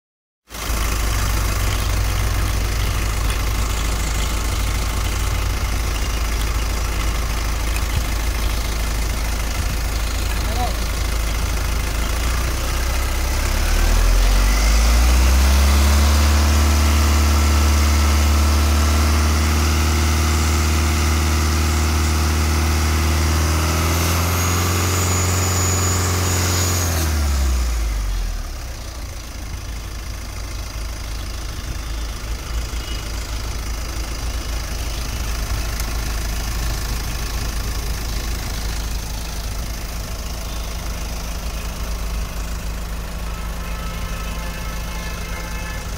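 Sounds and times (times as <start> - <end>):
diesel engine idling and revving: 0.4 - 45.9
high engine whistle: 24.0 - 27.6, 31.6 - 33.6, 40.3 - 45.9.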